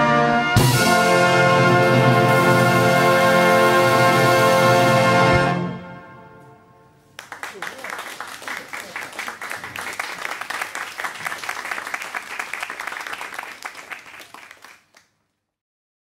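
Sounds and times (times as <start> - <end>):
many hands clapping: 7.1 - 15.3.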